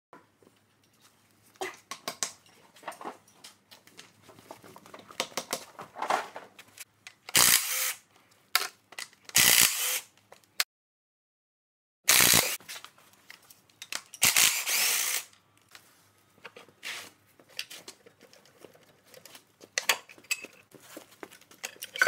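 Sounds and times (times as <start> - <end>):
impact wrench bursts: 7.3 - 8.0, 9.4 - 10.1, 12.1 - 12.6, 14.2 - 15.3.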